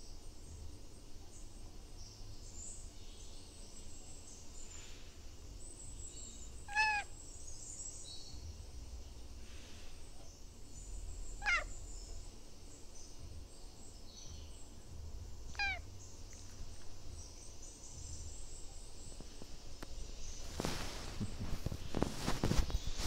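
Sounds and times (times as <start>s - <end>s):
cat meowing: 6.7s - 7.1s, 11.4s - 11.8s, 15.5s - 15.9s
rustling and bumps: 19.2s - 23.0s.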